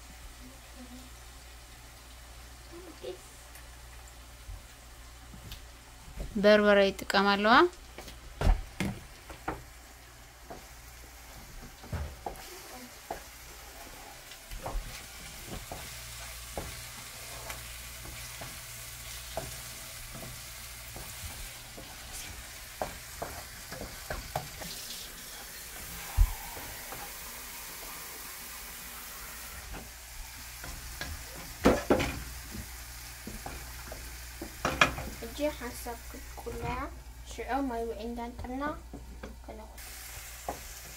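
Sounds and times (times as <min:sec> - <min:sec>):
food sizzling in a pot: 0:00.0 - 0:40.9.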